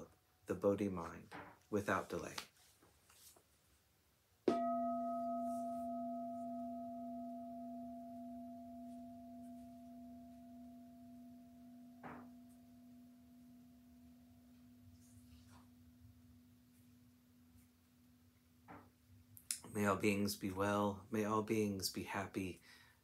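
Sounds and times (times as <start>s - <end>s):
soft rustle: 1.6s - 3.9s
bowl bell ringing: 4.5s - 14.8s.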